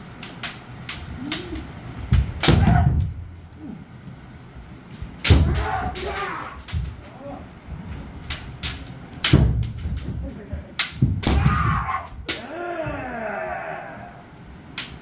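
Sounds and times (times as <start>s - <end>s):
bamboo swords clacking: 0.1s - 4.1s, 4.9s - 7.4s, 8.1s - 12.7s, 14.7s - 15.0s
person shouting: 5.4s - 7.5s, 11.3s - 14.2s.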